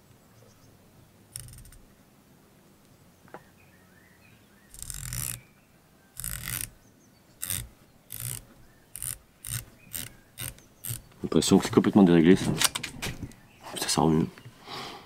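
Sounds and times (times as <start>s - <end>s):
scope turret clicks: 1.3s - 1.9s, 4.7s - 5.4s, 6.2s - 6.8s, 7.4s - 11.2s.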